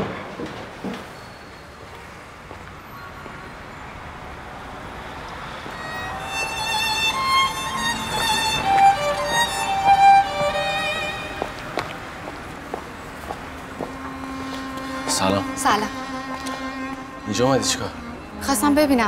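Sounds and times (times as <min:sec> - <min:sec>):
faint background noise: 0:00.0 - 0:19.0
violin melody with vibrato: 0:05.6 - 0:11.9, 0:13.7 - 0:19.0.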